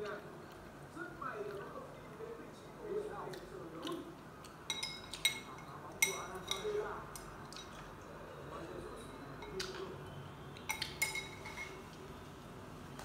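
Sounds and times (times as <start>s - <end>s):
chopsticks clinking on ceramic bowl: 4.7s - 7.8s, 10.7s - 11.8s.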